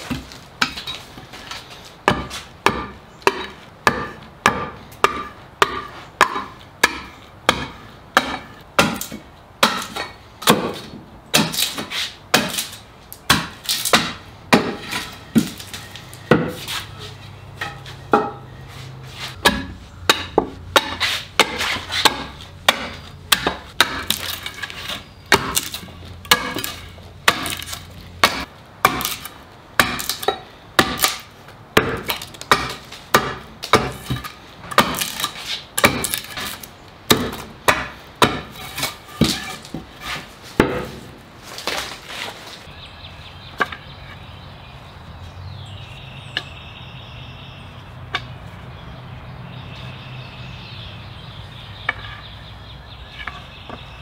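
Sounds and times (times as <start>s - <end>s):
hand axe chopping wood: 2.0s - 17.0s, 17.6s - 18.5s, 19.2s - 42.3s
wood splintering: 19.4s - 42.4s.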